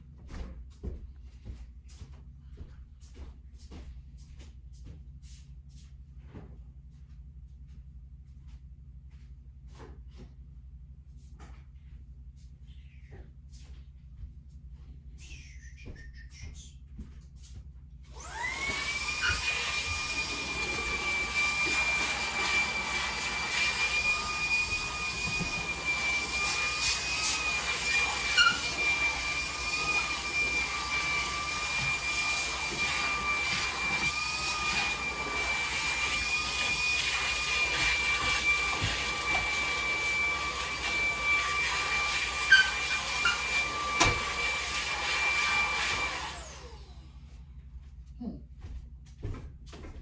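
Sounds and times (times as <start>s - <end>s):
stick vacuum cleaner whining: 18.1s - 47.2s.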